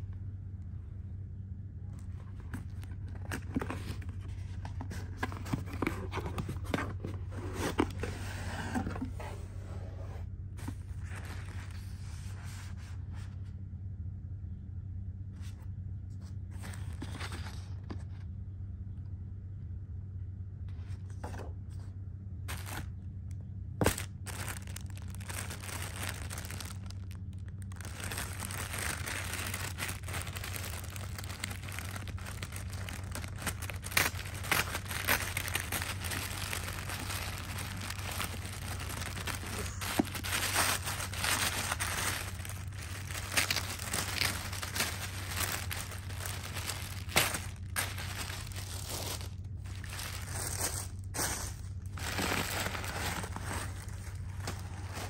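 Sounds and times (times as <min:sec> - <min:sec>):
steady low hum: 0:00.0 - 0:55.0
tissue paper crinkling: 0:02.0 - 0:09.3, 0:10.6 - 0:13.0, 0:22.5 - 0:22.9, 0:23.8 - 0:55.0.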